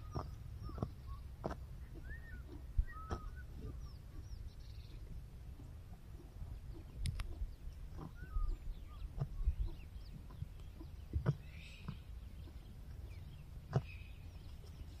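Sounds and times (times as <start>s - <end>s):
faint bird chirps: 0.0s - 5.0s, 8.0s - 15.0s.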